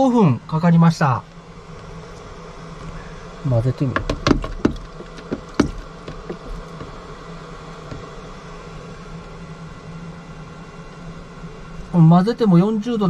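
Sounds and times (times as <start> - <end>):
electric buzzing hum: 0.0 - 13.0
heater knocking against plastic tank: 3.9 - 7.0, 7.8 - 8.2.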